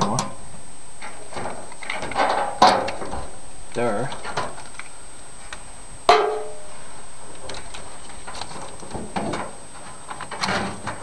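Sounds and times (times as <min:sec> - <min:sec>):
sharp metallic clank: 0:06.1 - 0:06.7.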